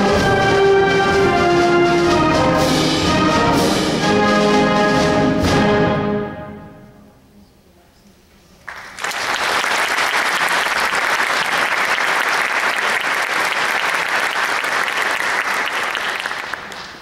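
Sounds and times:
audience applauding: 8.7s - 17.0s.

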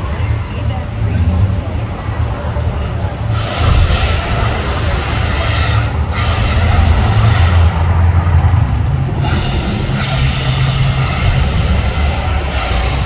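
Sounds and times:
deep rumble: 0.0s - 13.0s
rushing hiss of fire jets: 3.4s - 7.4s.

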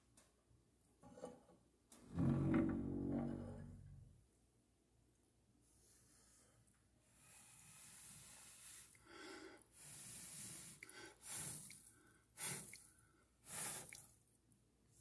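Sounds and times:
person blowing breath puffs: 7.2s - 14.1s.

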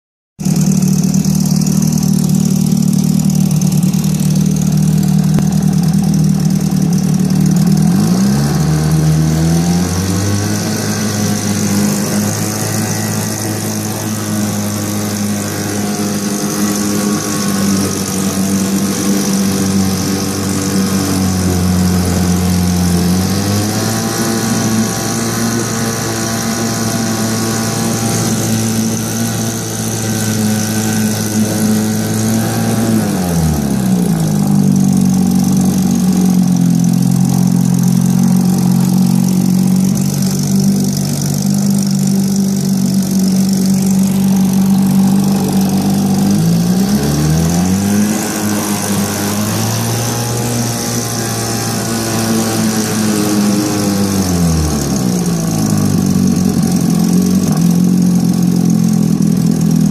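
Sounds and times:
outboard motor running: 0.4s - 59.9s
propeller churning water: 0.6s - 59.9s.

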